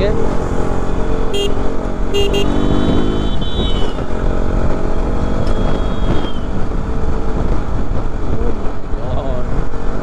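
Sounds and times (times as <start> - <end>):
motorcycle engine running: 0.0 - 10.0
wind rumble on microphone: 2.6 - 10.0.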